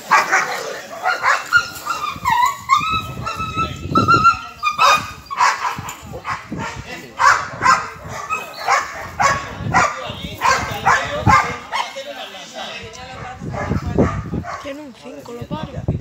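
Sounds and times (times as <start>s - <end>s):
dog barking: 0.1s - 1.6s, 4.8s - 11.9s, 13.5s - 14.7s
dog whining: 1.5s - 5.4s.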